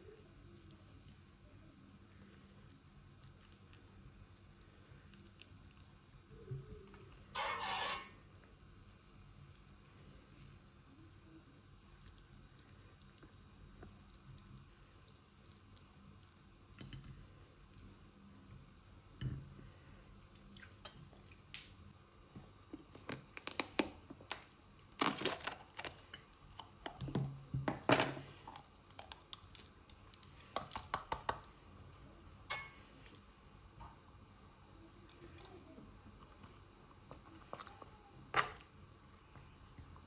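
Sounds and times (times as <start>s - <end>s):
soft handling of vegetables: 31.4s - 40.0s.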